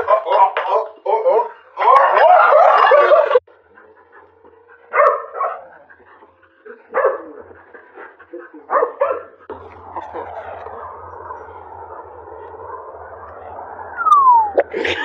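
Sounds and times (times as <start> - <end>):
dog barking: 0.0 - 3.4, 4.8 - 5.8, 6.9 - 7.6, 8.7 - 9.5.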